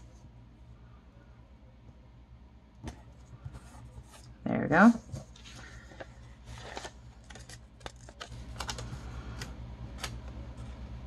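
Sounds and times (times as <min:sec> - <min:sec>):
paper rustling and crackling: 0:05.1 - 0:09.2.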